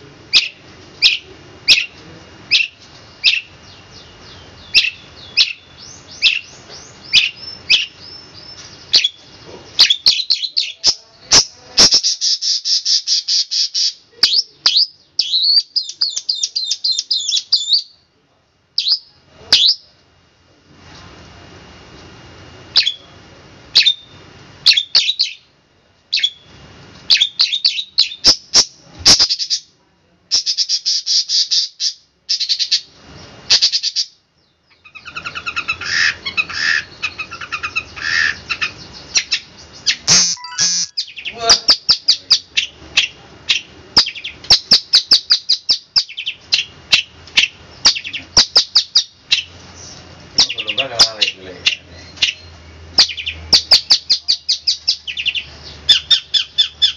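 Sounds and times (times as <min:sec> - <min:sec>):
shrike singing sharp high notes: 0:40.1 - 0:41.0.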